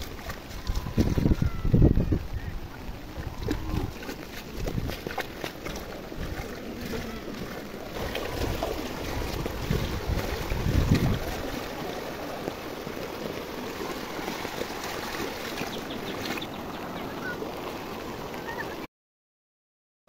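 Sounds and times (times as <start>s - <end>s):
wind rumble on microphone: 0.0s - 18.3s
floodwater rushing: 0.0s - 18.9s.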